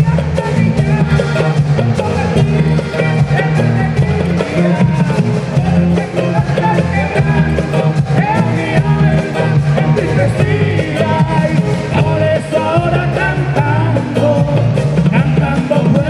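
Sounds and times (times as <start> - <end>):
accordion: 0.0 - 16.0
bass line: 0.0 - 16.0
guitars: 0.0 - 16.0
man singing into microphone: 0.0 - 16.0.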